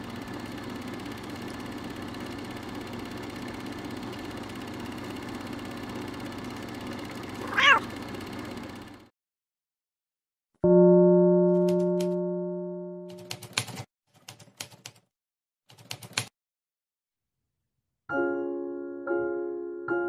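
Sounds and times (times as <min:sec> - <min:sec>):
cat meow: 0:07.4 - 0:07.9.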